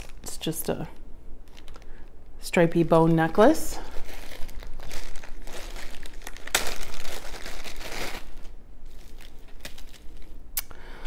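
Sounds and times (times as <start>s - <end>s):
plastic bags crinkling: 0.0s - 0.5s, 1.4s - 10.5s.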